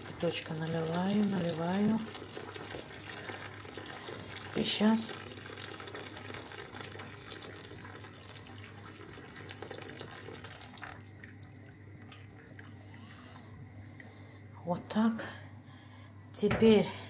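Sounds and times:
water pouring into pot: 0:00.0 - 0:14.1
soup simmering: 0:00.0 - 0:14.5.

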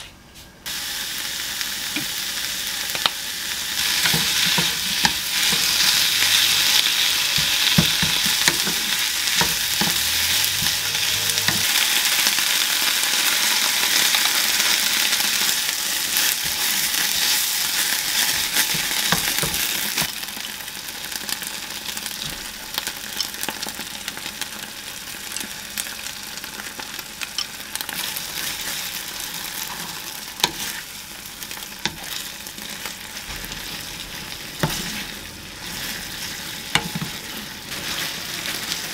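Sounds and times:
onion and bacon sizzling in pan: 0:00.6 - 0:38.9
wooden spoon scraping a pan: 0:04.0 - 0:11.8, 0:31.8 - 0:38.9.

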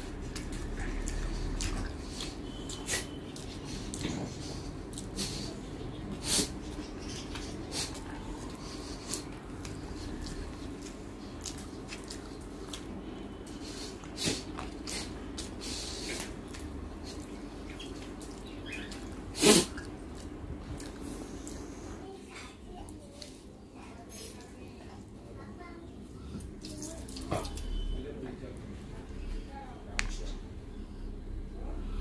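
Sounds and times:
low room hum: 0:00.0 - 0:32.0
wet chewing mouth clicks: 0:00.1 - 0:12.9, 0:13.5 - 0:21.6.

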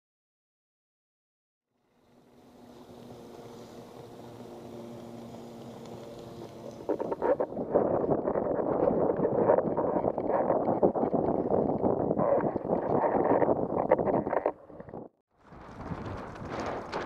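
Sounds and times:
motorboat engine drone: 0:01.8 - 0:08.2
wind buffeting microphone: 0:02.8 - 0:17.0.

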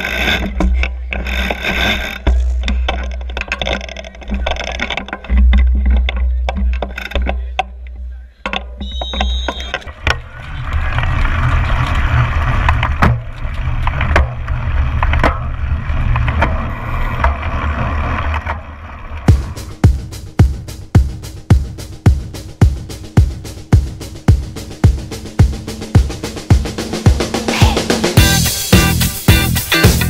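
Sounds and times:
bikes rolling over grass: 0:00.0 - 0:08.3, 0:08.9 - 0:19.4
low rumble with clicks: 0:00.0 - 0:27.2
brief high tone: 0:08.8 - 0:09.8.

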